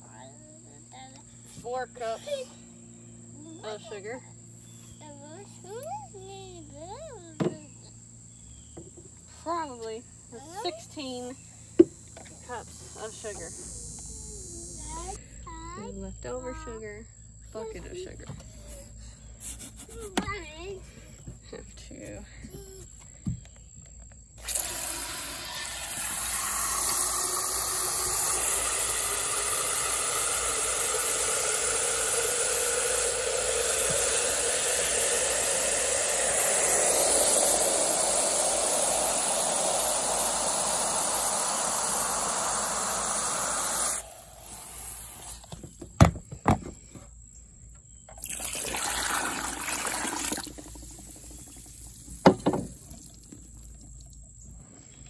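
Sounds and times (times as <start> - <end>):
hose spraying into plastic pitcher: 12.1 - 15.2, 24.4 - 45.7, 48.1 - 54.3
water poured into bucket: 24.4 - 45.4, 48.2 - 54.2.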